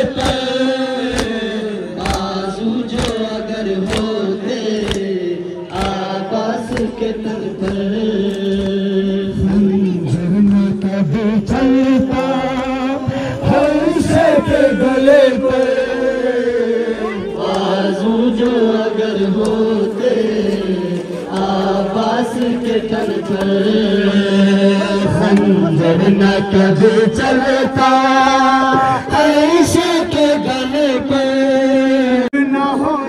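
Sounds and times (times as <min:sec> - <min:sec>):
crowd chanting a lament: 0:00.0 - 0:33.0
hands beating chests: 0:01.1 - 0:04.2.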